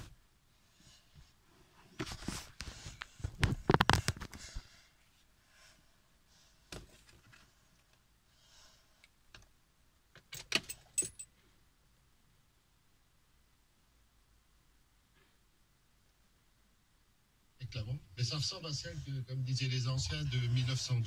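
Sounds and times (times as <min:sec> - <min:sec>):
car keys jangling: 0:10.3 - 0:11.3.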